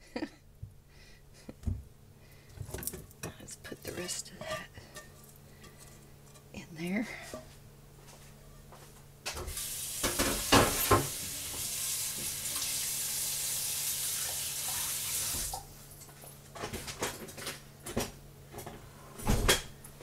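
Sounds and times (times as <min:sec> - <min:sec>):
tap water running: 0:09.4 - 0:15.7
dishes clunking: 0:10.0 - 0:11.2.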